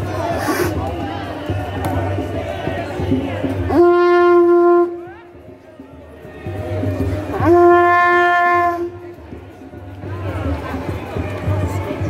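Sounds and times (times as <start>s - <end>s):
horn blowing long note: 3.7s - 5.2s, 7.3s - 9.1s.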